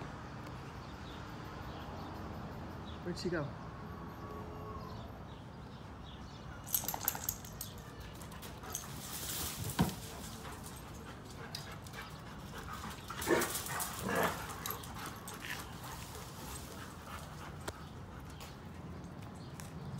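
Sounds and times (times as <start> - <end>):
dog moving about: 6.7 - 18.7.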